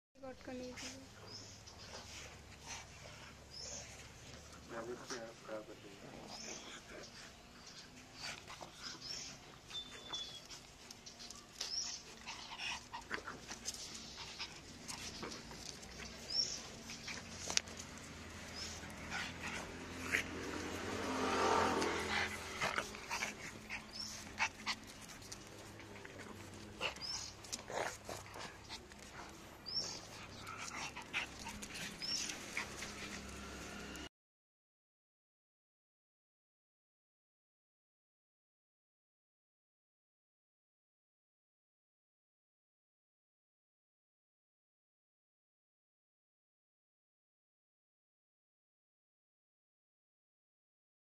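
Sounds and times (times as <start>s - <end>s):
dogs growling: 1.8s - 34.1s
small dogs yipping: 6.3s - 20.8s, 21.8s - 33.2s.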